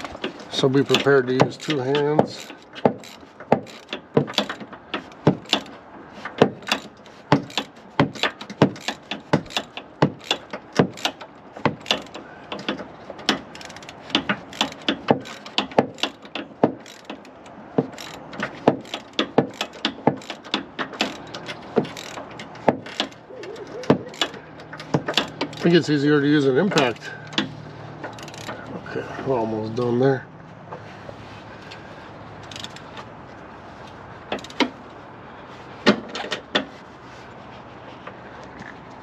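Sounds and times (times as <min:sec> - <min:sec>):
ratchet wrench clicking: 0:00.0 - 0:26.0, 0:26.8 - 0:28.8, 0:32.4 - 0:33.1, 0:34.3 - 0:34.8.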